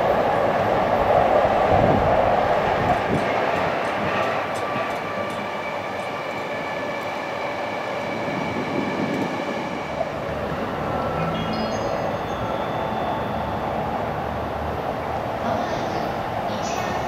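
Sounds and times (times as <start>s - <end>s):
electric train rumbling: 0.0s - 17.0s
faint high whine: 10.9s - 14.7s.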